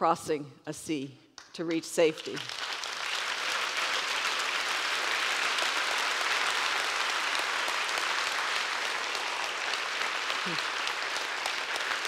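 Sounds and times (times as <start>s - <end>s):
audience applauding: 2.2s - 12.0s.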